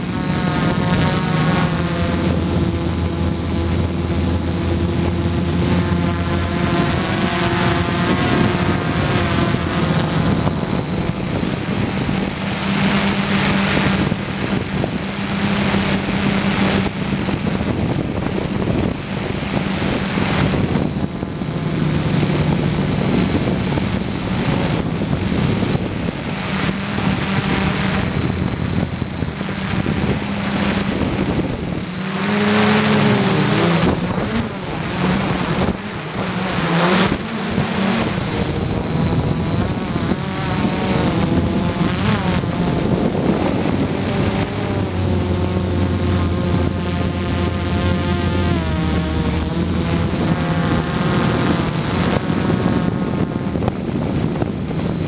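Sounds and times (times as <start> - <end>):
drone motors humming: 0.0 - 55.0
propeller wash rushing: 0.0 - 55.0.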